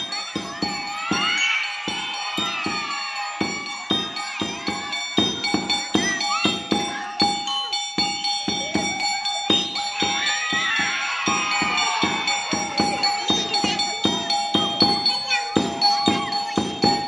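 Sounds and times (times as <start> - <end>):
drum beaten in quick rhythm: 0.0 - 17.0
ringing gong-like tones: 0.0 - 17.0.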